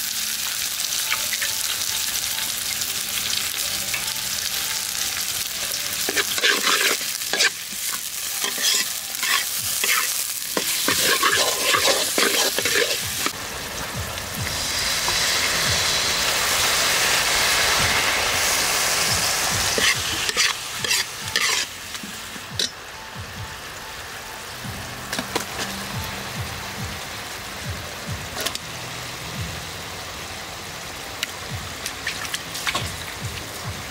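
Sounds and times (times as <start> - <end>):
food sizzling: 0.0 - 33.9
metal spatula scraping wok: 6.0 - 13.4, 17.0 - 21.8.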